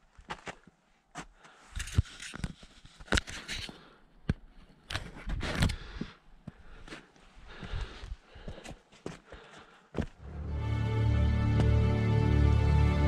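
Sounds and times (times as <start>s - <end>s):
footsteps on rock and stones: 0.0s - 10.2s.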